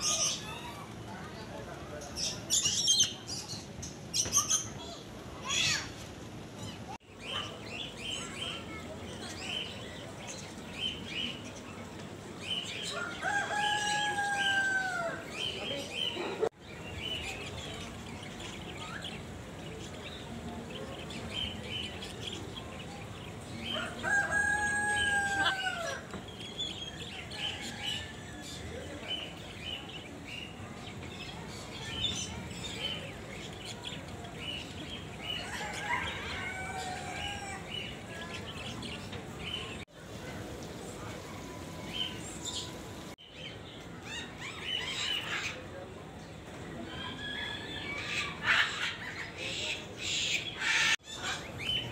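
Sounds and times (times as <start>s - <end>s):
small birds chirping: 6.6s - 51.9s.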